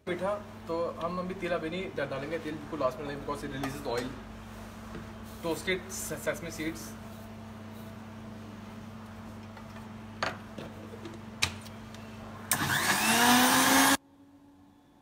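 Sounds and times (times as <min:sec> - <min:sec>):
steady low hum: 0:00.0 - 0:12.8
electric blender motor: 0:12.5 - 0:14.0.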